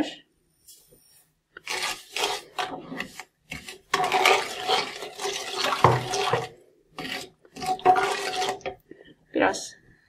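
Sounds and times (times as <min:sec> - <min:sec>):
spatula scraping sugar in a pan: 0:01.6 - 0:08.8.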